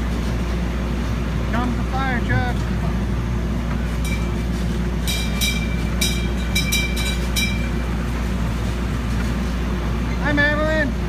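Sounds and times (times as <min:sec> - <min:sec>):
carnival ride low rumble: 0:00.0 - 0:11.0
sharp metallic rings: 0:04.0 - 0:07.8.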